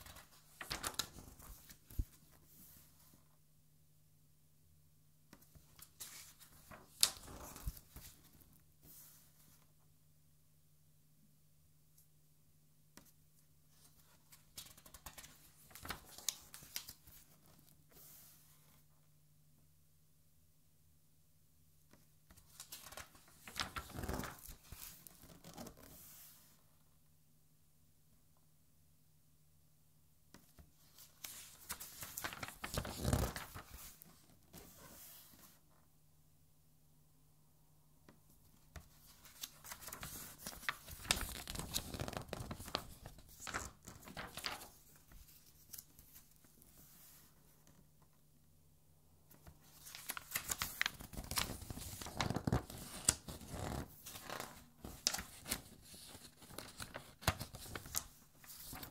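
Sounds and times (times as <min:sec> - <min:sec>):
paper page rustling: 0:00.0 - 0:02.9, 0:14.0 - 0:18.5, 0:22.4 - 0:26.5, 0:30.9 - 0:35.6, 0:38.8 - 0:47.3, 0:49.3 - 0:58.9.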